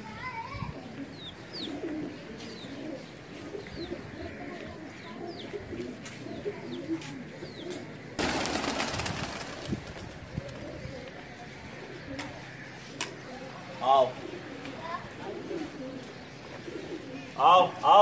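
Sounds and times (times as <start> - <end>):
pigeons cooing: 0.5 - 17.8
wings flapping: 8.2 - 10.8.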